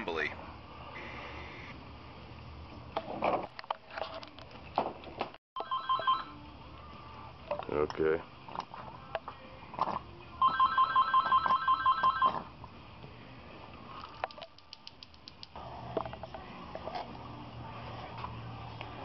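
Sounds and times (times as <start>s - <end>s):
telephone ringing with electronic trill: 5.6s - 6.3s, 10.4s - 12.4s.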